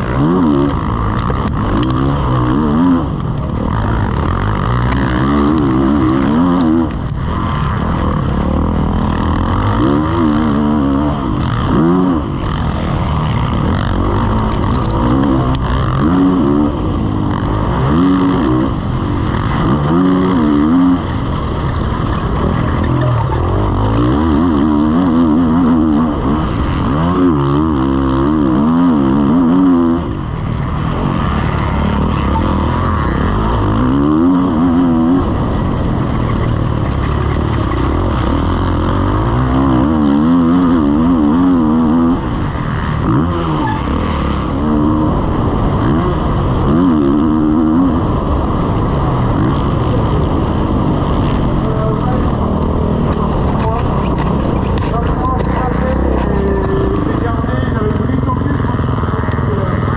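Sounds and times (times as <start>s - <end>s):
motocross engine revving: 0.0s - 59.9s.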